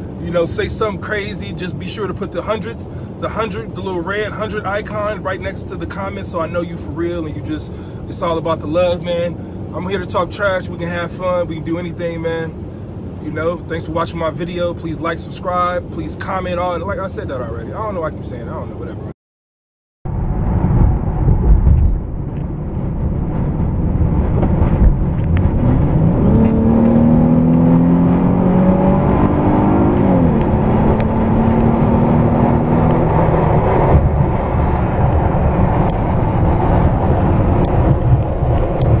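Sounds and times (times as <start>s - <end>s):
low cabin rumble: 20.1s - 27.0s, 32.9s - 39.0s
car engine accelerating: 20.2s - 39.0s.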